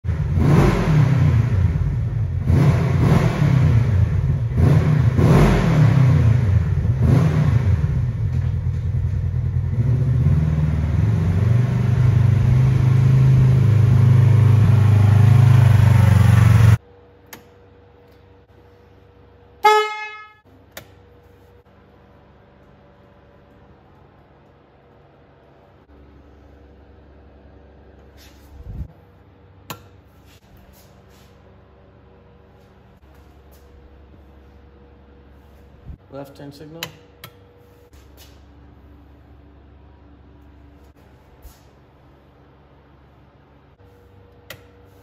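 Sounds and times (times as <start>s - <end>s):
vehicle engine revving: 0.1s - 8.4s, 9.3s - 16.8s.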